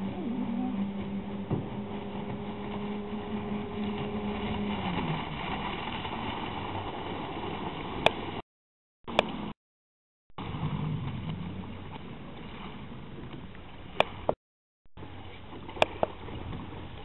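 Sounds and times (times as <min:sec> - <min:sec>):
noisy water rush: 0:00.0 - 0:08.4, 0:15.0 - 0:17.0
outboard motor droning: 0:00.0 - 0:08.4, 0:09.0 - 0:09.6, 0:10.4 - 0:14.4, 0:15.0 - 0:17.0.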